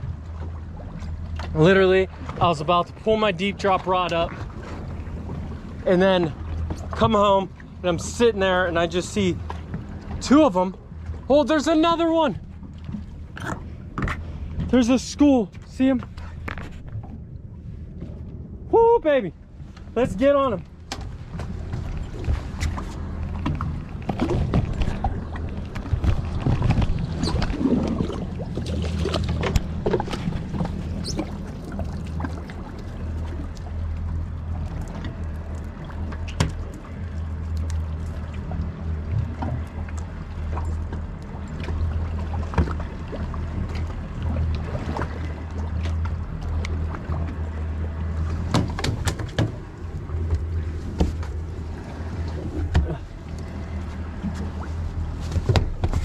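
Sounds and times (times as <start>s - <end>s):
boat engines idling: 0.0s - 56.0s
gear clattering on boat deck: 20.6s - 33.4s, 38.9s - 56.0s.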